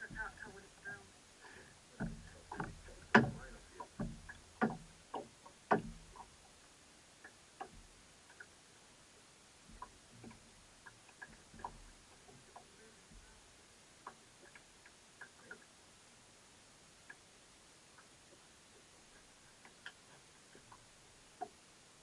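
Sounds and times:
knocks and clicks on a boat: 0:00.0 - 0:06.6, 0:07.2 - 0:08.5, 0:09.6 - 0:13.4, 0:14.0 - 0:15.7, 0:19.6 - 0:21.6.

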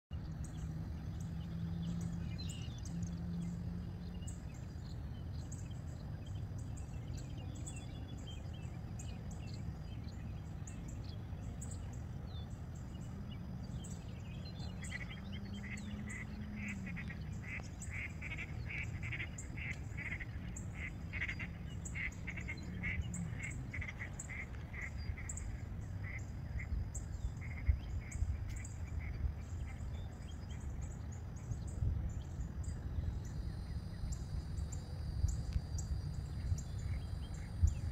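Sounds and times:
wind rumbling on microphone: 0:00.1 - 0:37.9
birds calling: 0:00.3 - 0:33.9.

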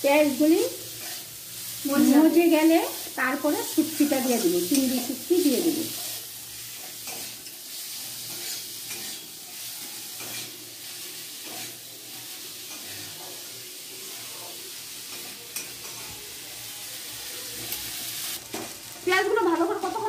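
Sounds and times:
onions sizzling in hot oil: 0:00.0 - 0:20.0
metal spatula scraping a pan: 0:05.9 - 0:16.1.

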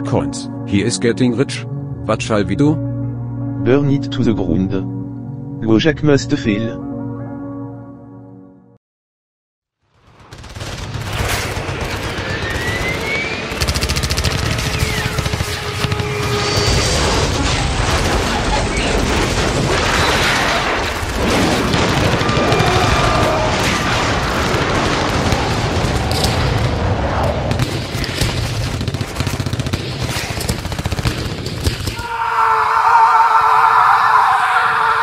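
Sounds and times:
music: 0:00.0 - 0:08.8
rapid gunfire: 0:09.9 - 0:32.0
explosion booms: 0:15.8 - 0:29.1.

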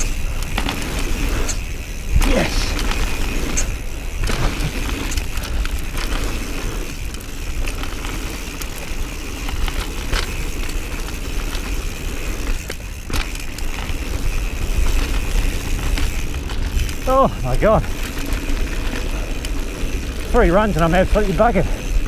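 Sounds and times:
bike chain and frame rattling: 0:00.0 - 0:22.0
bike tyre noise on dirt: 0:00.0 - 0:22.0.

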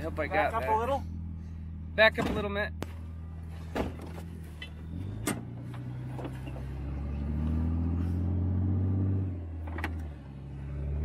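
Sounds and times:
vehicle engine revving under load: 0:00.0 - 0:11.0.

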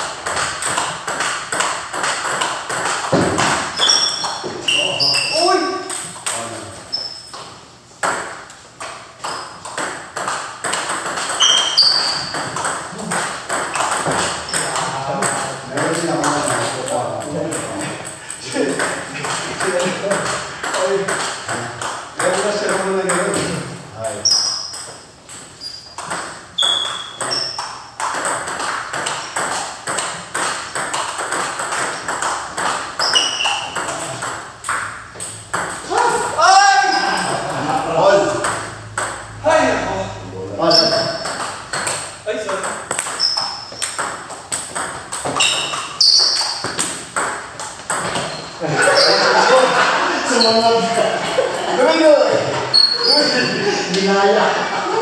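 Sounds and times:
table tennis balls clicking: 0:00.0 - 0:23.6, 0:24.2 - 0:36.4, 0:38.3 - 0:39.4, 0:40.6 - 0:49.7
short high squeaks: 0:03.8 - 0:05.5, 0:06.9 - 0:07.5, 0:11.3 - 0:12.4, 0:24.2 - 0:26.0, 0:26.6 - 0:27.6, 0:33.0 - 0:33.8, 0:40.6 - 0:41.3, 0:43.1 - 0:43.9, 0:45.4 - 0:46.7, 0:48.2 - 0:49.3, 0:52.7 - 0:53.4.

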